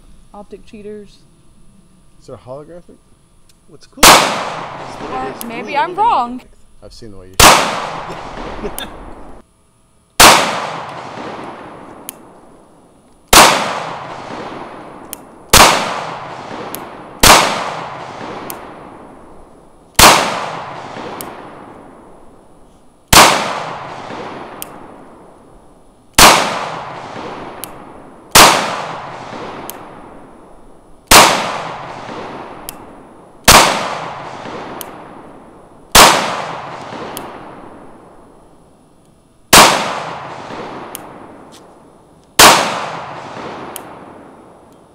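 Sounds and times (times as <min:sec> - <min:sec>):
pistol shots with echo: 0:04.0 - 0:05.4, 0:07.4 - 0:08.8, 0:10.2 - 0:12.1, 0:13.3 - 0:19.2, 0:20.0 - 0:22.0, 0:23.1 - 0:25.2, 0:26.2 - 0:30.4, 0:31.1 - 0:38.2, 0:39.5 - 0:41.4, 0:42.4 - 0:44.7.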